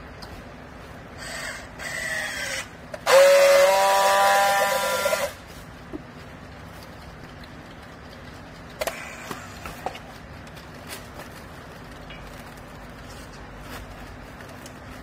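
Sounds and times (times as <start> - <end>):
strapping tool motor whine: 1.2 - 5.4
strapping tool motor whirring: 1.2 - 5.4.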